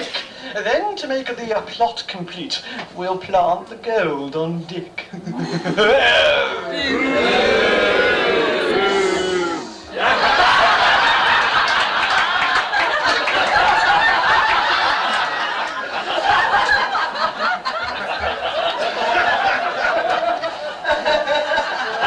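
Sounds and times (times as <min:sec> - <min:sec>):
audience laughing: 0:05.2 - 0:22.0.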